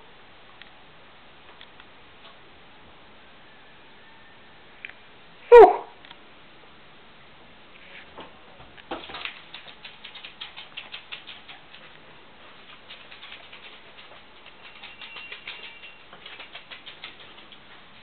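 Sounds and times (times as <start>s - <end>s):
dog claws clicking on floor: 8.8s - 18.0s.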